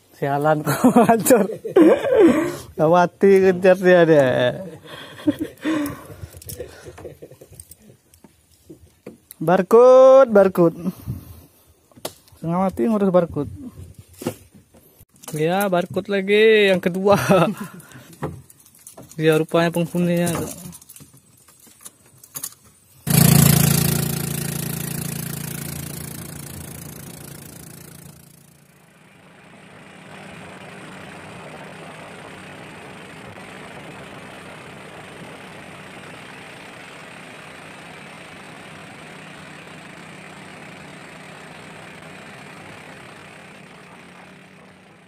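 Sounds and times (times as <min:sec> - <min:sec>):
boat motor running: 0:23.1 - 0:45.0.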